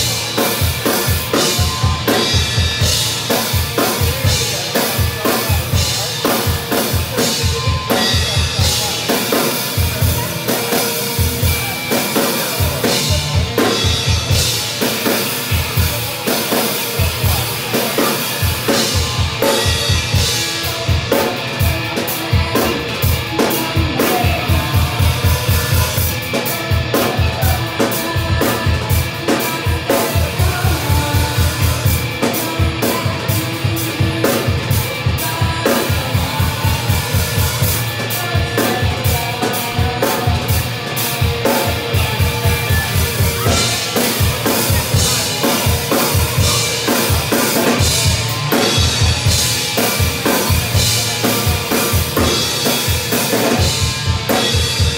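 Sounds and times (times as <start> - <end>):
drum kit beat: 0.0 - 54.9
electric guitar: 0.0 - 54.9
rock band playing: 0.0 - 54.9.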